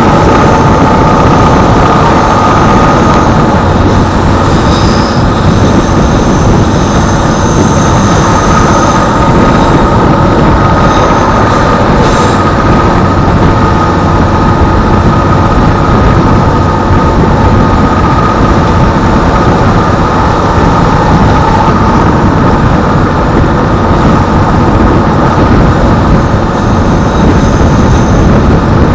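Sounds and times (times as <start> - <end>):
diesel railcar engine and wheels: 0.0 - 28.9
faint high whine: 0.0 - 28.9.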